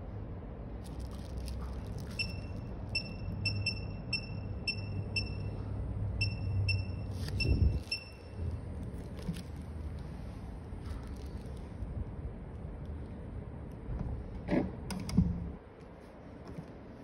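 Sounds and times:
low steady hum: 0.0 - 17.0
short high electronic beeps: 2.2 - 5.6, 6.2 - 8.4.

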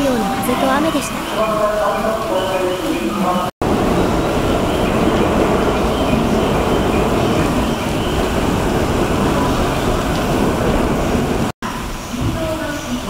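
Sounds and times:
heavy rain falling: 0.0 - 13.0
gusty wind on microphone: 3.6 - 13.0.

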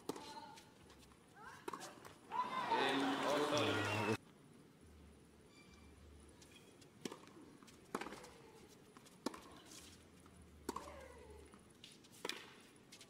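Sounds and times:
tennis racket hitting ball: 7.0 - 8.4, 10.6 - 11.1, 11.8 - 12.6.

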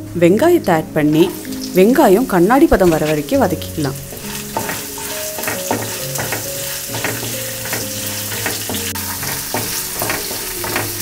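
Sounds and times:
onions sizzling in hot oil: 0.0 - 11.0
wooden spatula scraping pan: 2.6 - 11.0.

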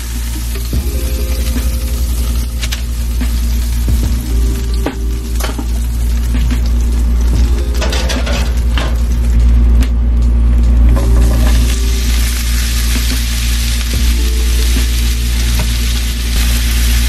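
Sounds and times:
kitchenware clanking: 7.4 - 9.2
steak sizzling in frying pan: 11.9 - 17.0.

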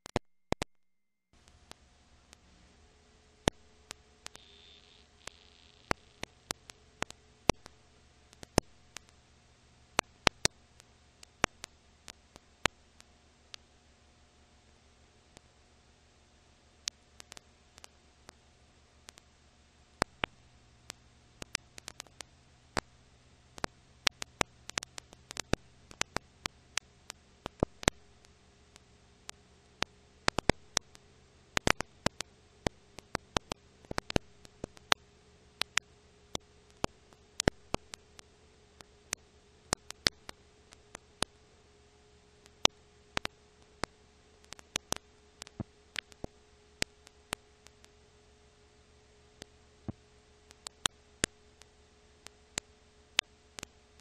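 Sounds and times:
faint steady hum: 1.4 - 54.0
film surface clicks and pops: 3.5 - 9.2, 20.0 - 22.9, 23.6 - 28.0, 29.8 - 31.0, 31.6 - 35.0, 35.6 - 41.3, 42.4 - 48.0, 49.4 - 54.0.

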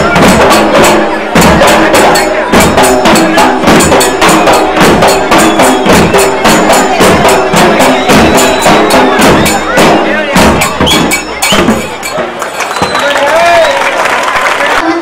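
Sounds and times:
barrel drums beaten with sticks: 0.0 - 12.4.

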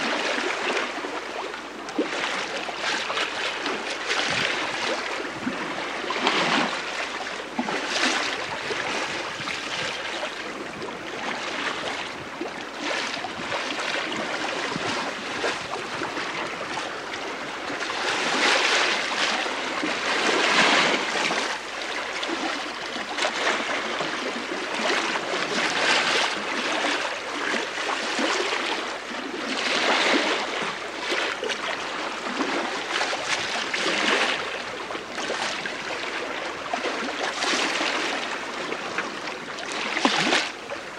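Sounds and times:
water rushing along hull: 0.0 - 40.9.

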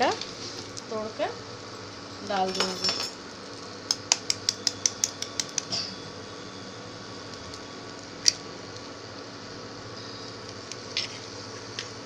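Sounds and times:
metal spoon tapping eggshell: 3.9 - 5.8.

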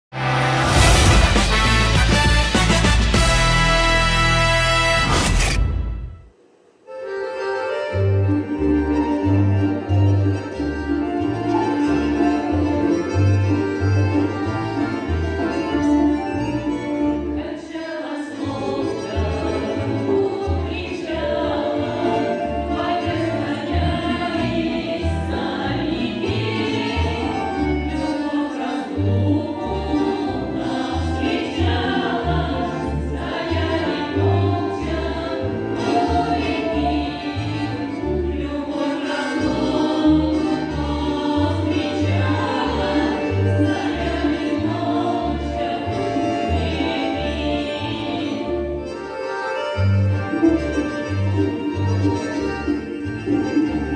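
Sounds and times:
accordion: 0.2 - 6.2, 6.8 - 53.9
women's choir singing: 17.3 - 48.8.

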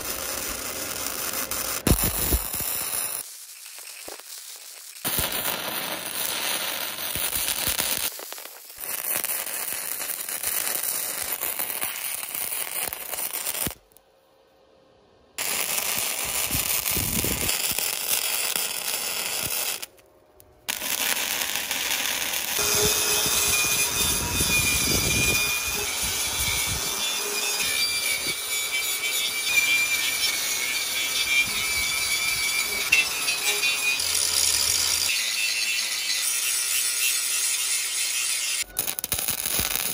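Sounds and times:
welding arc crackling: 0.0 - 13.9, 15.4 - 20.0, 20.7 - 39.9
angle grinder whining on steel: 22.5 - 39.0.

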